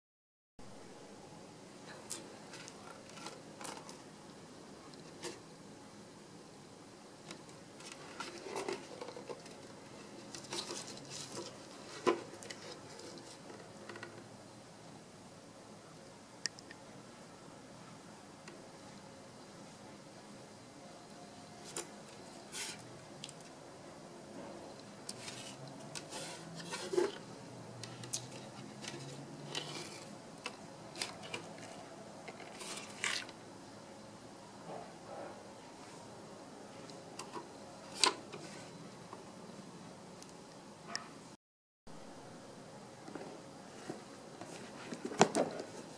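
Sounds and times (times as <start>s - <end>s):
plastic device handling noise: 2.0s - 4.0s, 7.2s - 14.3s, 25.0s - 33.4s, 43.1s - 45.9s.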